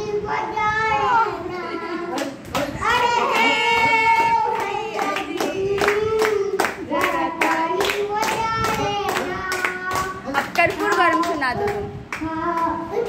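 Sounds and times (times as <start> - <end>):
child singing into microphone: 0.0 - 13.0
hand clapping: 2.1 - 12.7.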